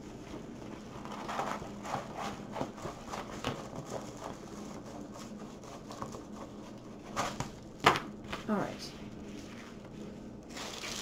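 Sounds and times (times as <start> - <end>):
paper and plastic rustling: 8.3 - 11.0.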